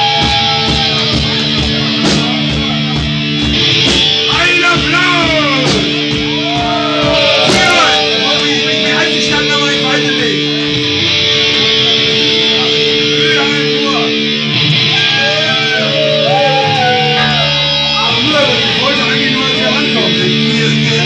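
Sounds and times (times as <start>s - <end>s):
many voices shouting: 0.0s - 1.3s, 6.3s - 9.2s, 14.8s - 17.9s
electric guitars ringing chords: 0.0s - 21.0s.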